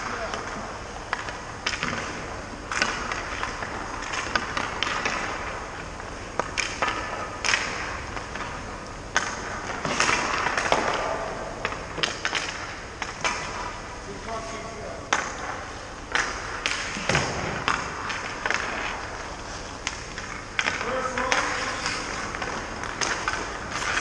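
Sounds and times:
pucks hitting boards: 0.0s - 13.8s, 15.1s - 24.0s
hockey sticks cracking on pucks: 0.0s - 13.9s, 14.5s - 24.0s
skate blades scraping ice: 15.2s - 24.0s.

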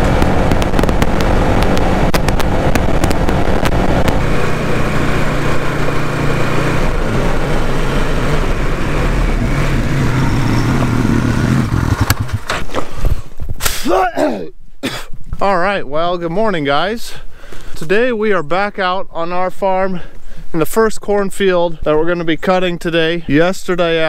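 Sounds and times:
wind noise on microphone: 0.0s - 5.7s, 8.7s - 13.8s
atv engine running: 0.0s - 12.6s.

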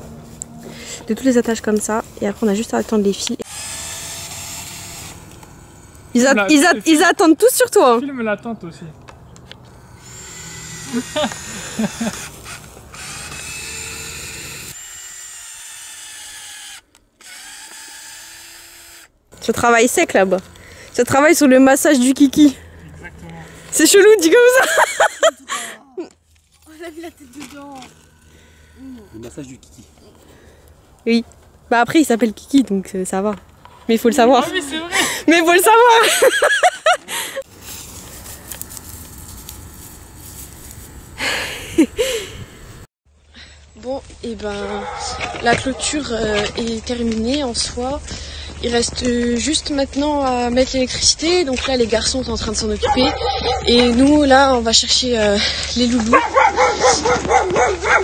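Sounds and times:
cordless drill whining into wood: 3.4s - 6.5s, 9.5s - 19.5s, 27.0s - 29.5s.

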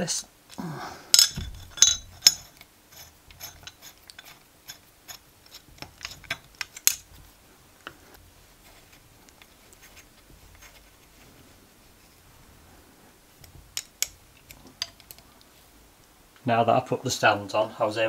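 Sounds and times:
hex key turning screws: 1.2s - 7.1s.

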